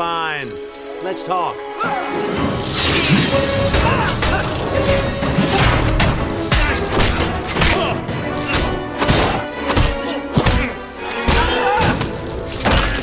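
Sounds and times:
orchestral score: 0.5 - 13.0.

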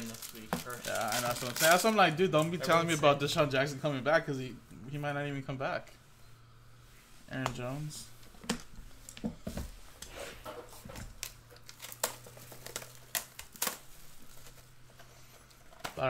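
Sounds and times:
pack wrapper tearing: 0.0 - 1.9, 11.2 - 14.3.

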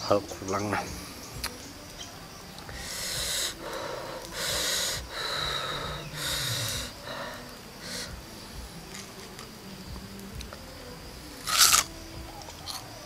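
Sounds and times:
man hissing breaths through teeth: 2.7 - 8.3.

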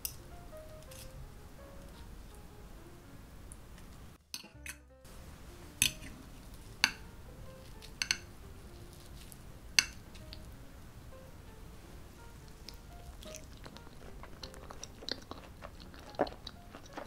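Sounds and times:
background music: 0.0 - 17.0
cutlery clinking on plate: 4.3 - 4.9, 5.8 - 6.1, 7.8 - 8.3, 9.8 - 10.0.

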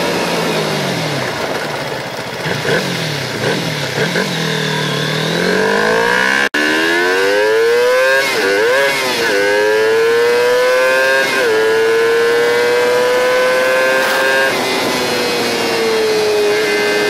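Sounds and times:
motorcycle engine revving: 0.0 - 17.0.

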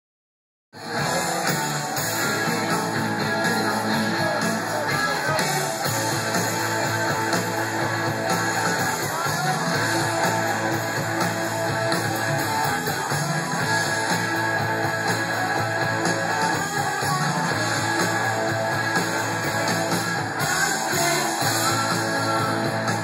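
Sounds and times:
bass guitar: 0.8 - 23.0
distorted electric guitars: 0.8 - 23.0
drums: 0.8 - 23.0.

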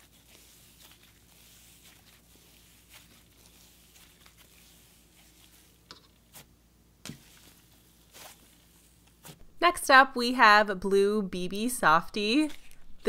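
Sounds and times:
slime squishing: 0.0 - 9.4.

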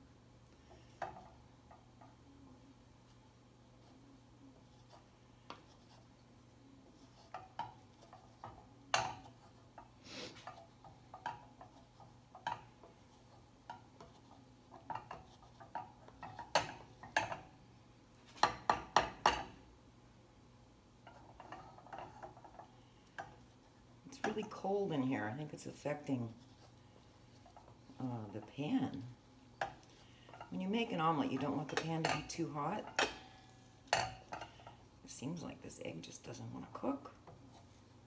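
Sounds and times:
wooden spatula scraping a skillet: 6.8 - 17.3, 21.0 - 34.8.

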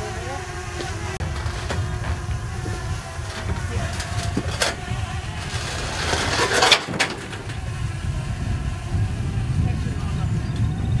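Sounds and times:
metal scraping rasp: 0.0 - 7.7
steady low rumble: 0.0 - 11.0.

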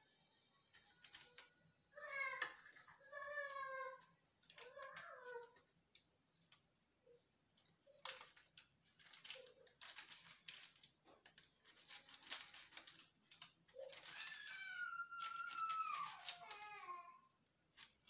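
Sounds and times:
long high cry: 13.9 - 16.6.

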